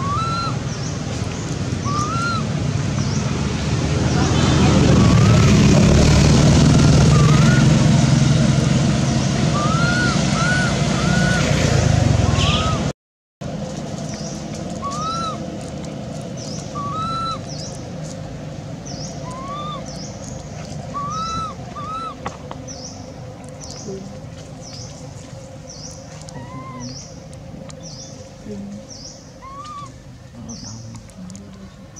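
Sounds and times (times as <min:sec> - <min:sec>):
infant monkey whimpering calls: 0:00.0 - 0:00.6, 0:01.9 - 0:02.5, 0:07.0 - 0:07.8, 0:09.6 - 0:11.5, 0:14.8 - 0:15.4, 0:16.8 - 0:17.5, 0:19.2 - 0:19.9, 0:20.9 - 0:22.2, 0:26.3 - 0:27.0, 0:29.4 - 0:30.0
low background rumble: 0:00.0 - 0:31.9.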